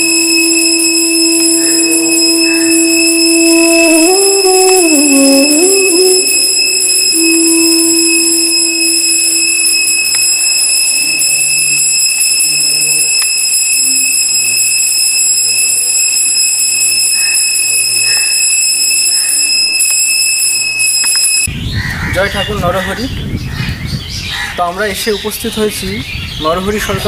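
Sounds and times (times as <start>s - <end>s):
soft music with low notes: 0.0s - 10.4s
high-pitched whine: 0.0s - 11.8s.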